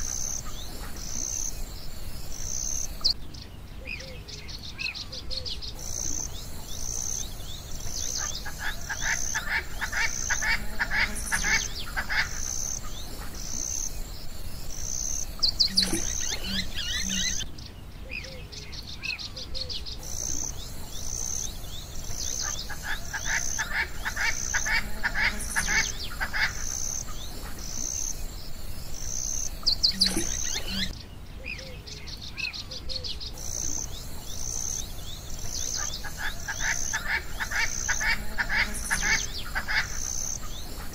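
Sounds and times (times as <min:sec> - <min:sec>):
birds trilling and calling: 0:00.0 - 0:40.9.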